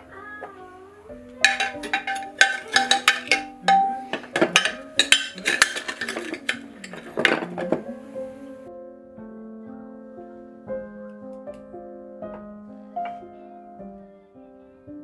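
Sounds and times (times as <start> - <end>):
soft background music: 0.0 - 15.0
metal measuring cups clinking: 1.4 - 7.9.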